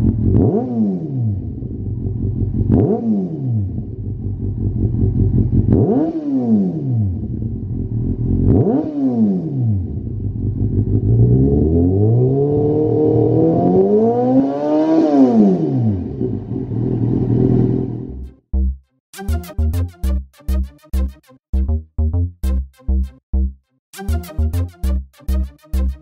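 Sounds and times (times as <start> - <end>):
motorcycle engine revving: 0.0 - 18.3.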